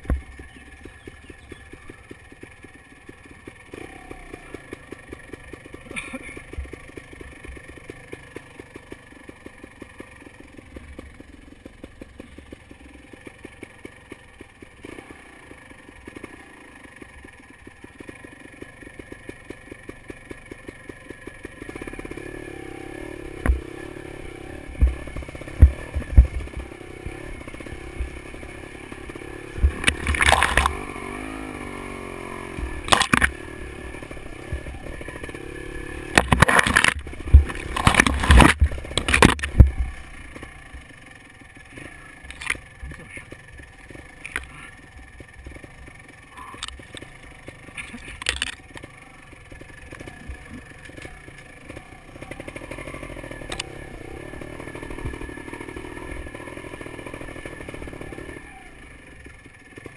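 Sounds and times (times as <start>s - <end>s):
motorcycle engine running: 0.0s - 59.9s
bike knocking and clattering: 24.7s - 31.2s, 36.0s - 40.3s.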